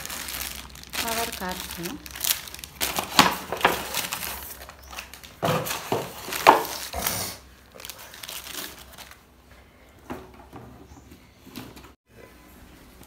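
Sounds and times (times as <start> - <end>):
plastic film crinkling: 0.0 - 9.3.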